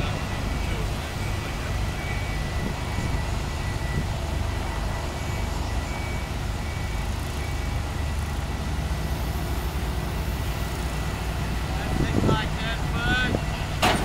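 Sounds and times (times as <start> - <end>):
heavy diesel engine running: 0.0 - 14.0
faint high beeps: 0.1 - 8.4.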